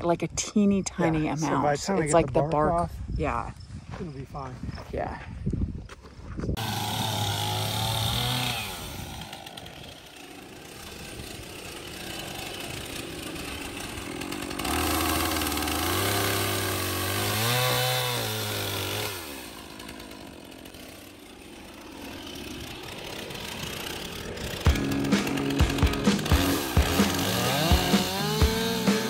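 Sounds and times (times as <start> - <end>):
chainsaw revving: 6.6 - 29.0.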